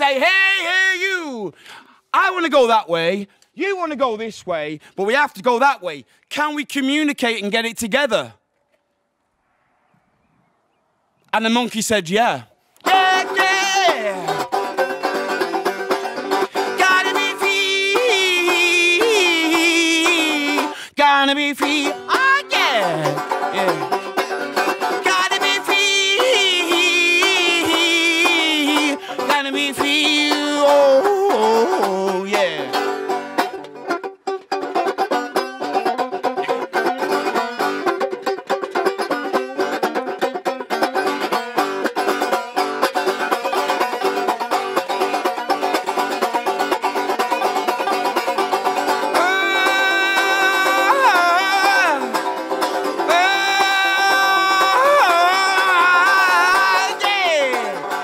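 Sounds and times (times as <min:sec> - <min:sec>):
man wailing wordlessly: 0:00.0 - 0:04.2, 0:12.8 - 0:14.7, 0:16.2 - 0:33.2, 0:48.8 - 0:58.0
banjo strumming blues rhythm: 0:00.0 - 0:08.3, 0:11.4 - 0:58.0.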